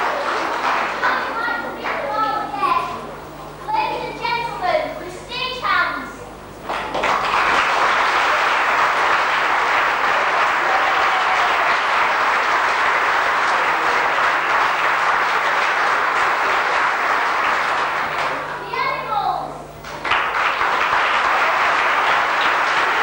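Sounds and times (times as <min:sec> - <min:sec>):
audience applause: 0:00.0 - 0:02.6, 0:06.6 - 0:18.8, 0:19.8 - 0:23.0.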